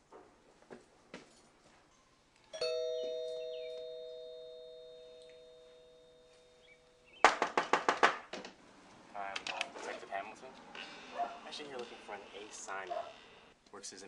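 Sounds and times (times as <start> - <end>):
doorbell chime: 2.6 - 7.2
loud sharp knocks: 7.2 - 8.5.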